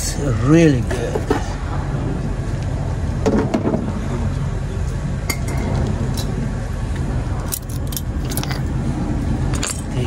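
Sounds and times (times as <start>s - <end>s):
metal brake parts clinking: 7.4s - 8.7s.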